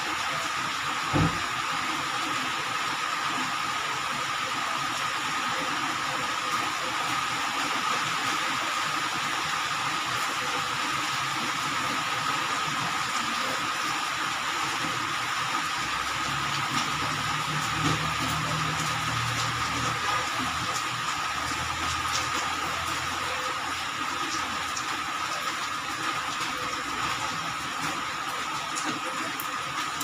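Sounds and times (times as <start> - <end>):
constant mechanical hiss: 0.0 - 30.0.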